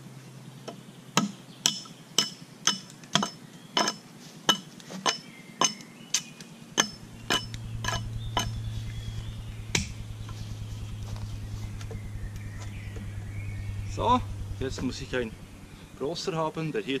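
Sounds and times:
low steady hum: 6.1 - 17.0.

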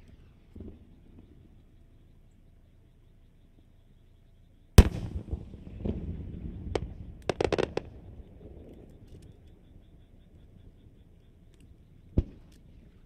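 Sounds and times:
loud firework bang: 4.8 - 8.0
sharp firework cracks: 4.8 - 8.2
firework crackles: 4.8 - 9.4.

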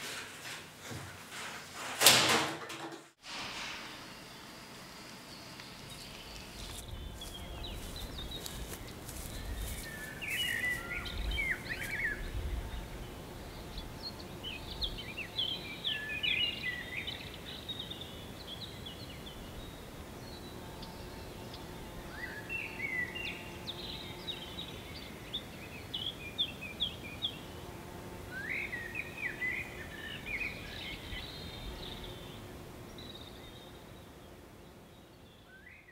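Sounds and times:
songbird twittering: 5.3 - 12.8.

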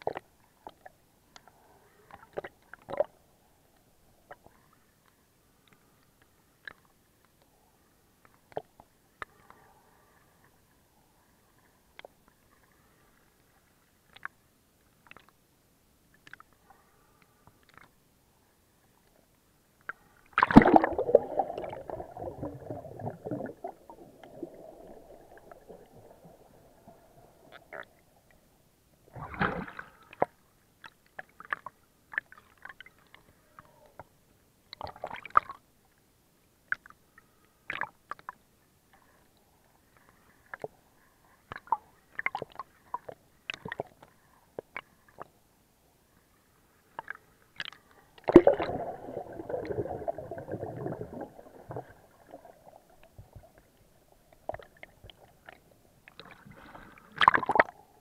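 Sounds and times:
short splashes and pops: 20.4 - 24.5, 29.1 - 30.3, 47.0 - 52.0, 56.1 - 57.8
sea water sloshing and gurgling: 20.4 - 28.1, 29.1 - 30.3, 47.0 - 57.9.

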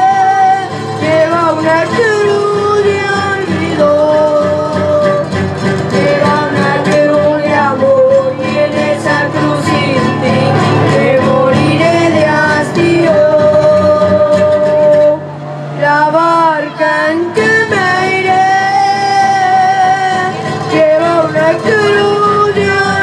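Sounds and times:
strummed acoustic guitars: 0.0 - 23.0
boys singing: 5.9 - 15.2, 15.8 - 23.0.

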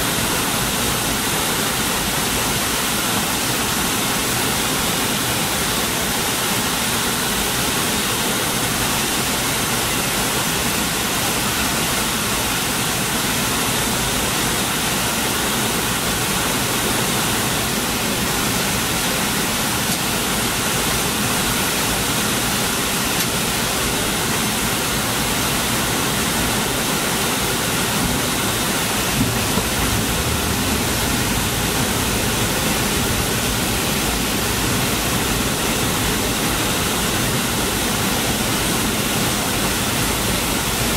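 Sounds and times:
airplane cabin rushing noise: 27.8 - 38.8.

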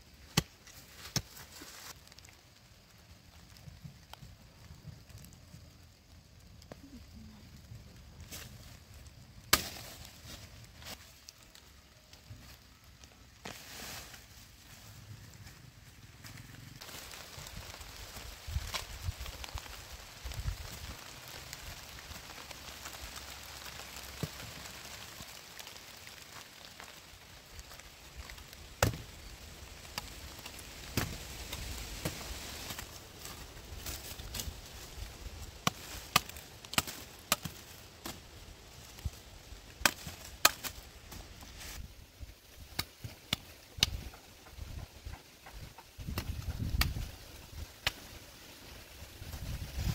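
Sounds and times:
machete chopping wood: 28.8 - 29.0.

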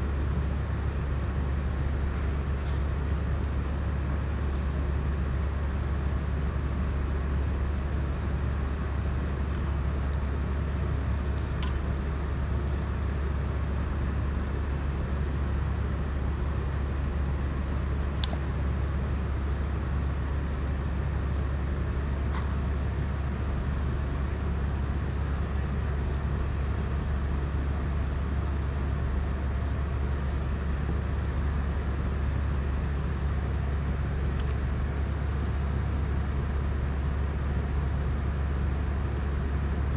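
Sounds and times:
steady low hum: 0.0 - 39.9.

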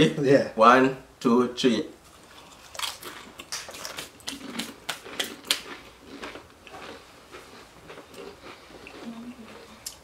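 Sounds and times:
chip crunching: 2.2 - 10.0.

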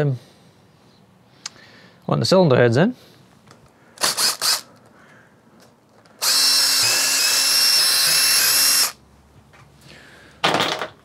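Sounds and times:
power driver motor whine: 4.0 - 4.7, 6.2 - 9.0.

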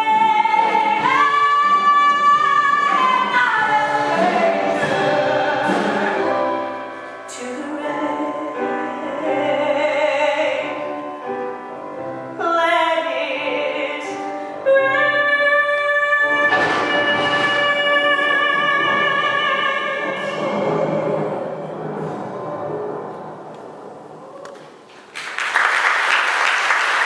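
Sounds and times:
woman singing a ballad: 0.0 - 6.5, 7.3 - 11.0, 12.4 - 21.3
instrumental accompaniment: 0.0 - 23.9.

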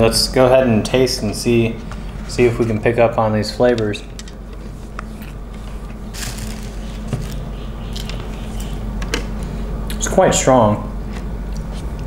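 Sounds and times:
low room hum: 0.0 - 12.0
person chewing food: 11.0 - 12.0.

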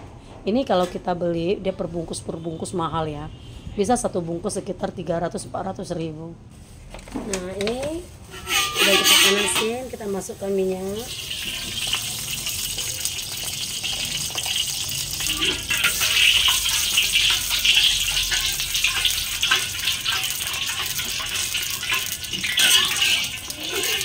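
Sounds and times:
metal spatula scraping a wok: 8.2 - 10.2, 11.0 - 12.3, 15.2 - 24.0
oil sizzling in a wok: 8.2 - 24.0.

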